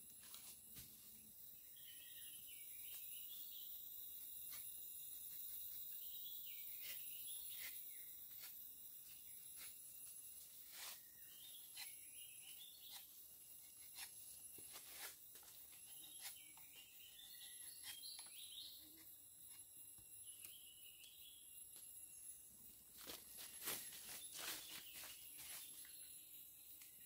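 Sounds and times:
high insect drone: 0.0s - 27.0s
bird chirps: 5.3s - 8.5s, 10.8s - 14.0s, 15.8s - 22.4s.

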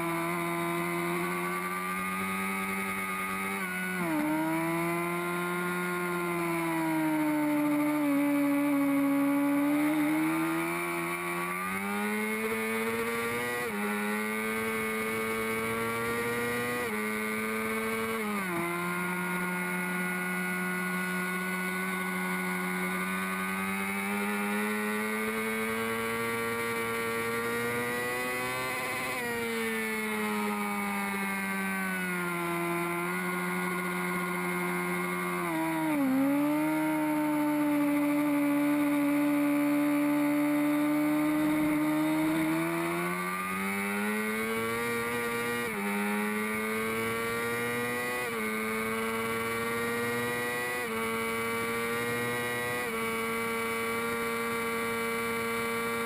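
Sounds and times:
motorcycle engine revving with upshifts: 0.0s - 56.0s.

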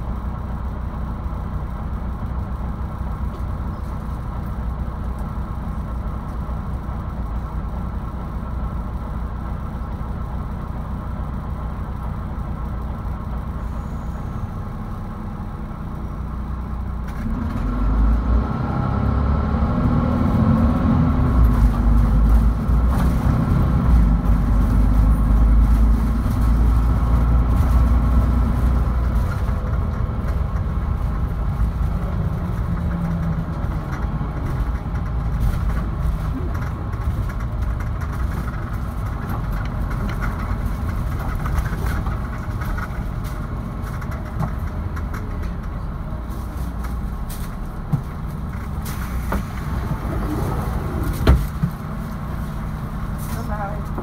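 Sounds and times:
bus engine running: 0.0s - 54.0s.

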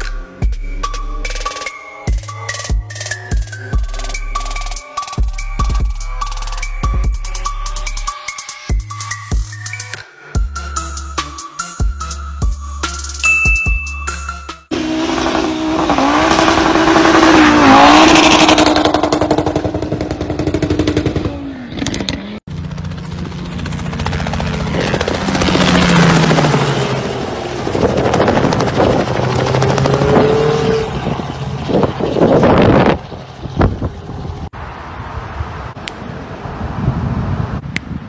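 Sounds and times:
car passing loudly: 14.7s - 21.8s, 25.0s - 37.7s
car engine rising in pitch: 14.7s - 22.4s, 24.9s - 37.6s.

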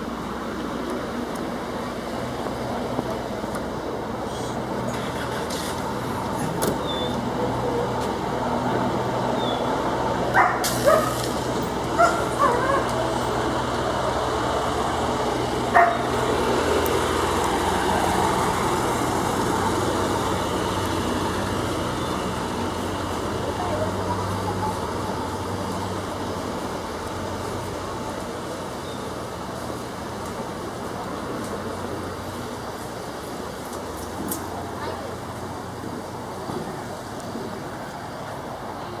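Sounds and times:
idling engines and traffic hum: 0.0s - 39.0s
dog barking: 10.4s - 11.2s, 12.0s - 12.9s, 15.7s - 16.1s.

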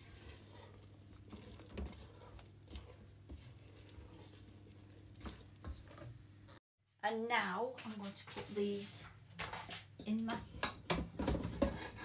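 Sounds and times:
spatula scraping batter in bowl: 0.0s - 6.2s.

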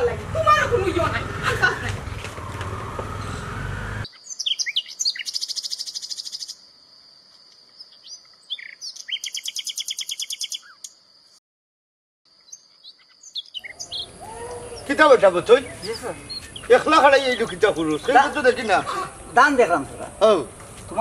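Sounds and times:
birds chirping: 0.0s - 6.8s, 7.4s - 11.4s, 12.3s - 21.0s
fast bird trills: 4.0s - 6.6s, 8.0s - 10.9s, 12.5s - 14.9s.

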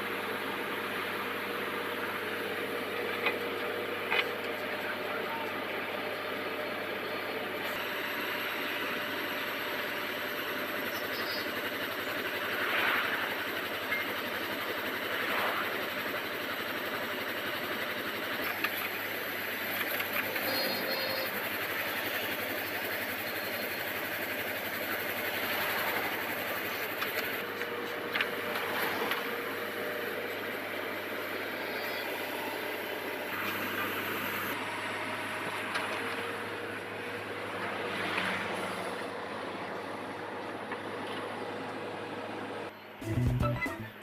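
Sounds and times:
drilling rig running under load: 0.0s - 44.0s.

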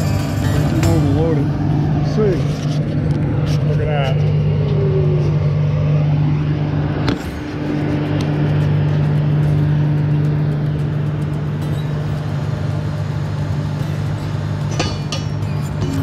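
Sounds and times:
diesel engine droning: 0.0s - 16.0s
metal clanks: 13.9s - 16.0s.

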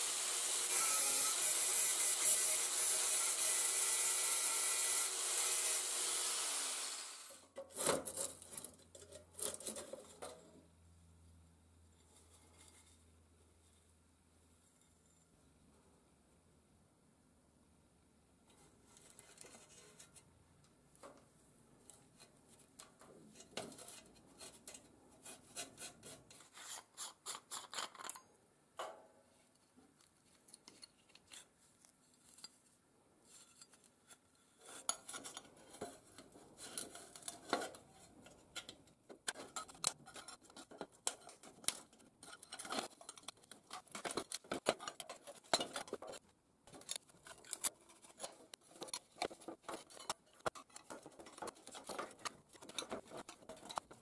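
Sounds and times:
scraping and rubbing on metal: 11.9s - 13.9s, 18.6s - 20.3s, 21.9s - 28.2s, 29.3s - 54.0s.

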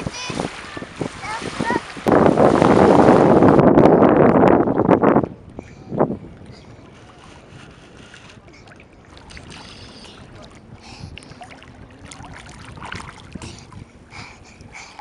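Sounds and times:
child splashing in shallow water: 0.0s - 3.7s, 7.0s - 13.9s
steady wash of water: 0.0s - 15.0s.

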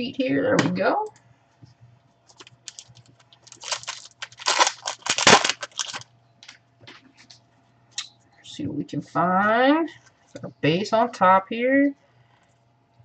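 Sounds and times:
foil wrapper tearing and crinkling: 2.3s - 6.1s.

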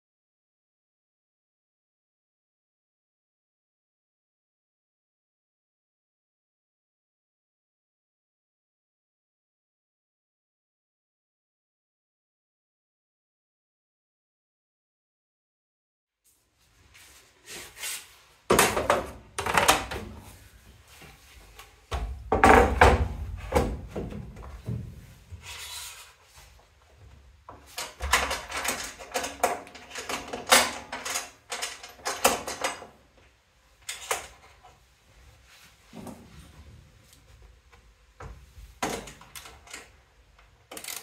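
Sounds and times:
plywood sliding on metal bed: 25.4s - 26.2s.

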